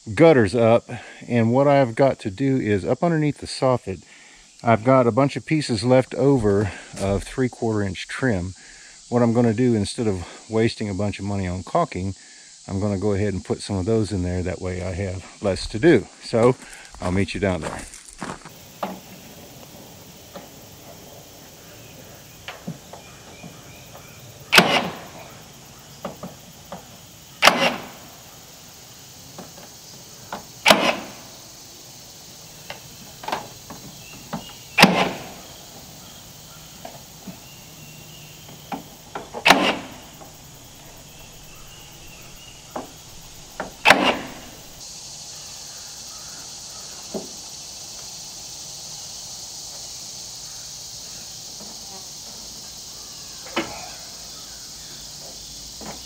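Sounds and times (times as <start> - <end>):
nail gun firing: 24.5 - 25.1, 27.4 - 28.0, 30.6 - 31.3, 34.8 - 35.4, 39.4 - 40.0, 43.6 - 44.8.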